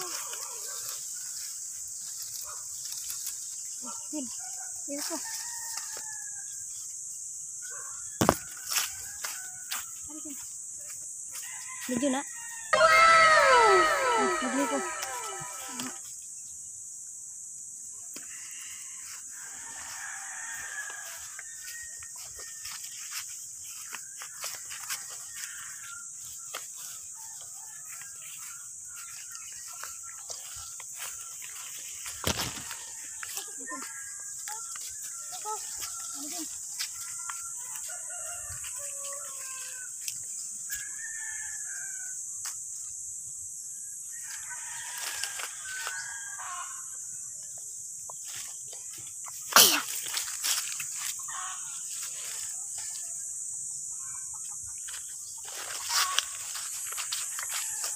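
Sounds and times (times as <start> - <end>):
twigs and leaves crackling: 0.0 - 3.8, 28.2 - 38.4, 55.4 - 57.9
insects hissing: 0.0 - 57.9
rooster crowing: 5.1 - 6.5, 11.4 - 16.0, 19.0 - 23.0, 24.1 - 30.8, 32.4 - 40.0, 40.7 - 42.2, 44.1 - 47.0, 55.5 - 57.9.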